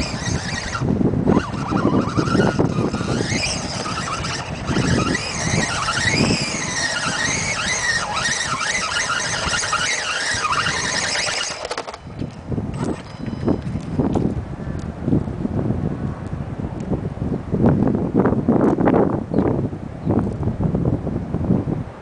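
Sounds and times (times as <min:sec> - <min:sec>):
electric motor whining: 0:00.0 - 0:14.3.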